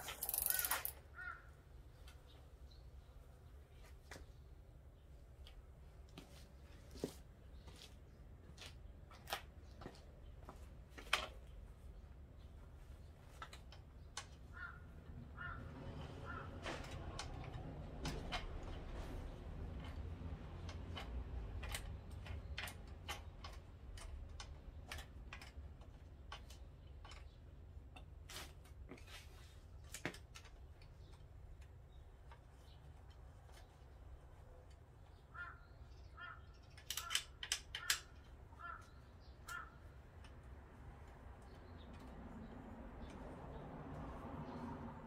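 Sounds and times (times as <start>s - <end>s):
clicks and knocks of bicycle parts: 0.0s - 1.2s, 8.5s - 11.7s, 12.8s - 43.4s
crow cawing: 0.5s - 1.6s, 14.5s - 16.6s, 35.3s - 39.8s.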